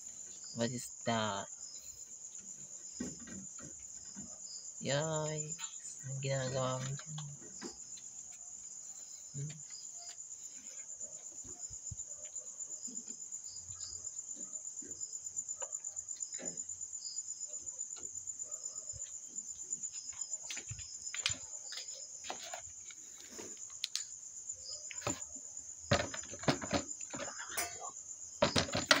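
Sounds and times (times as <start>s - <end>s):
crickets chirring: 0.0s - 29.0s
knocks and rustles: 2.2s - 4.6s, 5.5s - 16.8s, 24.9s - 29.0s.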